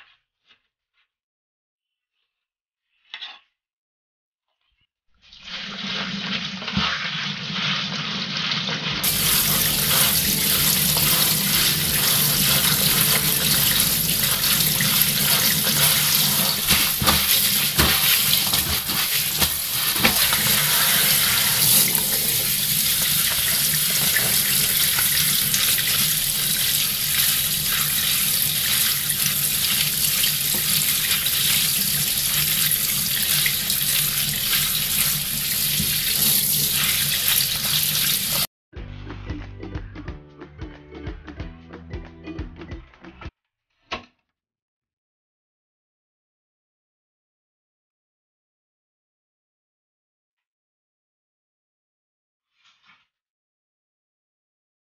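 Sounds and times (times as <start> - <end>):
tap running into metal sink: 9.0 - 38.4
hands rinsing vegetables: 9.0 - 38.5.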